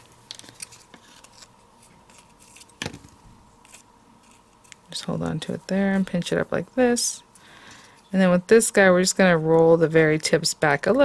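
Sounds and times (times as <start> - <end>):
paper rustling: 0.0 - 5.6.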